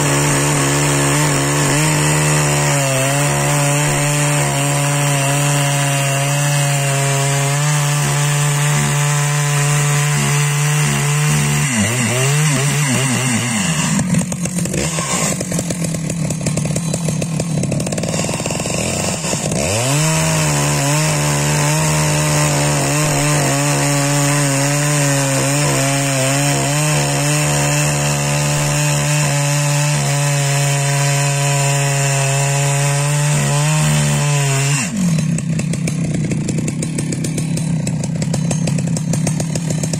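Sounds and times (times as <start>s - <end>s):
chainsaw cutting logs: 0.0s - 39.9s.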